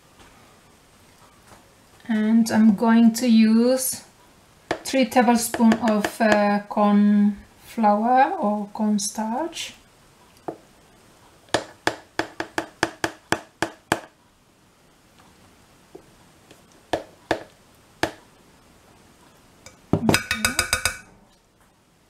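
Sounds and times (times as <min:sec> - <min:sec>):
cutlery clinking on glass bowl: 0:19.7 - 0:21.1
spoon tapping a container: 0:19.7 - 0:21.1.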